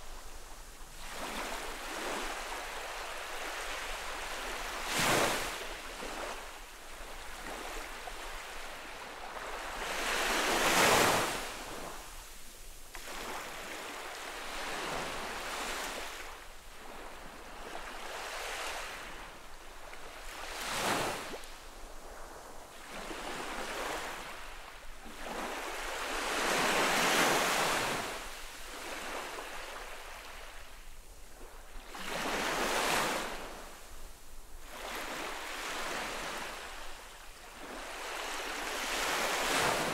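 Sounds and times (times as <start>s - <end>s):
small waves lapping on sand: 0.0s - 39.9s.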